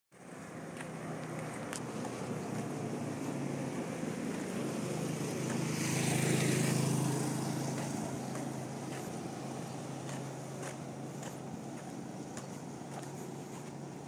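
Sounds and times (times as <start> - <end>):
traffic noise: 0.1 - 14.0
motorcycle passing: 0.2 - 14.0.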